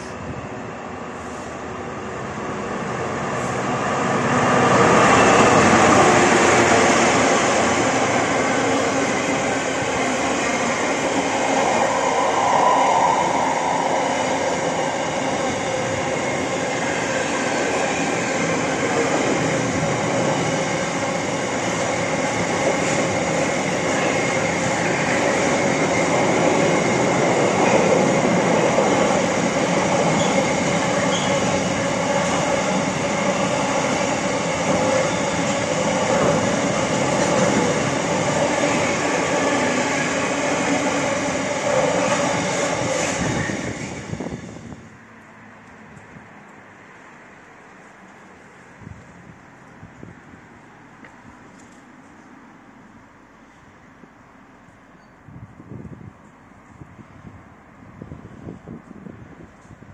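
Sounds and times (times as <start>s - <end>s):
freight train wheels rolling on rails: 0.0s - 45.0s.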